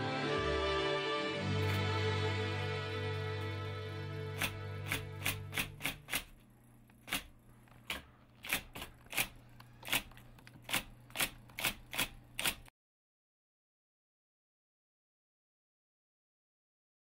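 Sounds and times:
soft music: 0.0s - 6.0s
electric typewriter keys clacking: 4.3s - 6.4s, 7.0s - 12.7s.

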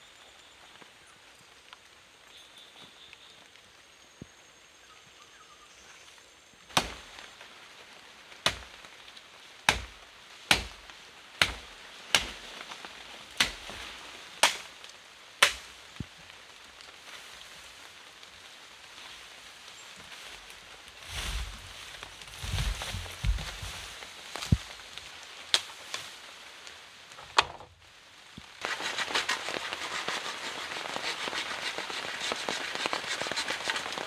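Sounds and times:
blade chopping bamboo: 6.7s - 7.0s, 8.4s - 8.8s, 9.7s - 12.5s, 13.4s - 13.8s, 14.4s - 14.7s, 15.4s - 15.7s, 28.6s - 34.0s.

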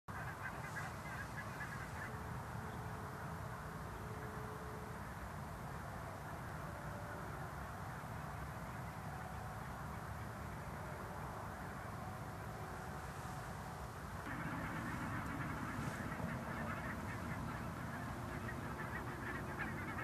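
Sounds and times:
faint bird calls: 0.1s - 3.2s, 8.7s - 20.0s
steady low rumble: 13.4s - 20.0s.

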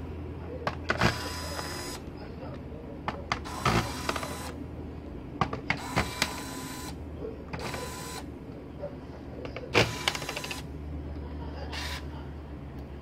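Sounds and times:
electric screwdriver whirring: 3.4s - 4.6s, 5.8s - 7.0s.

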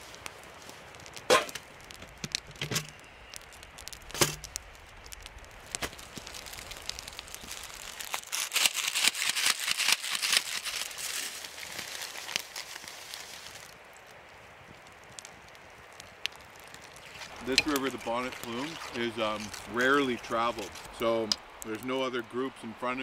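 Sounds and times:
plastic bag crinkling: 0.0s - 13.8s, 16.6s - 21.0s.

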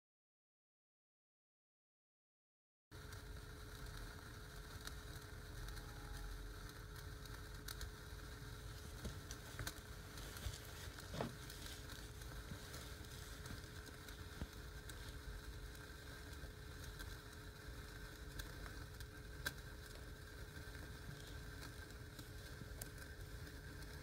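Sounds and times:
spark fountains fizzing and crackling: 2.9s - 24.0s
low steady rumble and hum: 3.0s - 24.0s.

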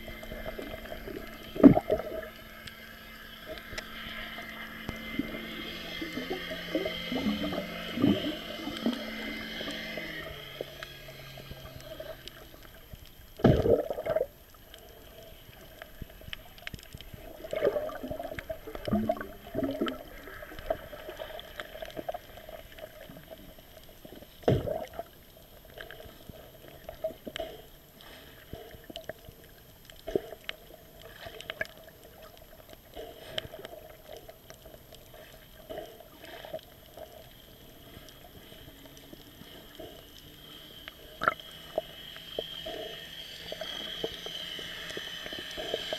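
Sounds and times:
water gurgling underwater: 0.0s - 27.4s, 40.9s - 42.0s.

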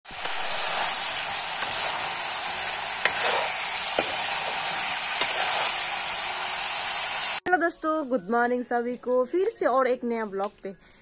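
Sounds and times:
meat sizzling in a pan: 0.0s - 7.4s
metal spoon stirring: 0.2s - 6.1s.

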